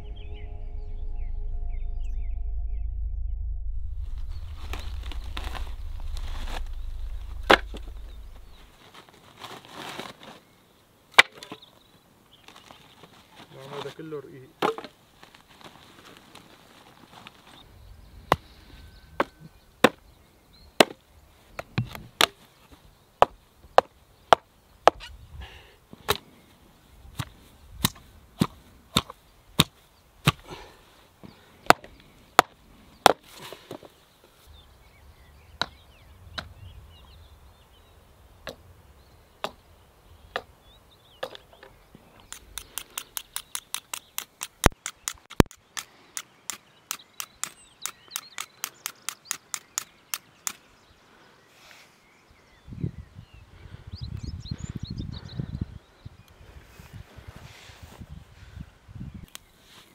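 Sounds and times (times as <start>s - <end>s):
hatchet chopping kindling on wood: 20.8s - 21.0s, 27.8s - 30.5s.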